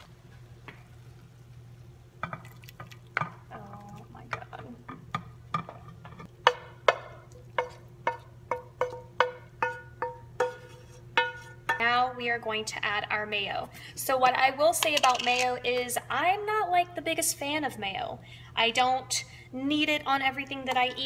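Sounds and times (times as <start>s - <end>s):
spatula scraping frying pan: 10.4s - 11.6s.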